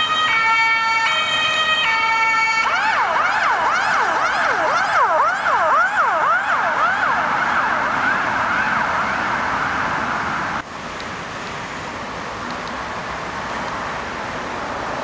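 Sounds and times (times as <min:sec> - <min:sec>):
emergency siren yelping: 0:00.0 - 0:10.6
passing traffic road noise: 0:00.0 - 0:15.0.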